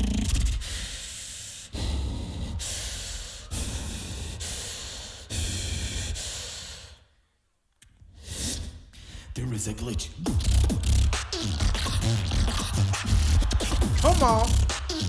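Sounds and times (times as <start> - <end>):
beatboxer hissing into a microphone: 8.2 - 8.8
deep bass: 10.1 - 14.8.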